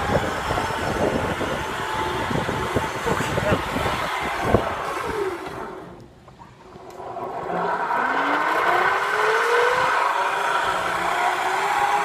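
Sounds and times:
air rushing over microphone: 0.0 - 6.0.

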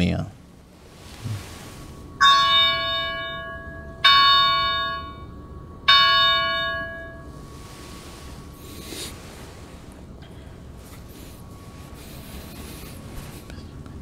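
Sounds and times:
small bell ringing: 2.2 - 7.3.

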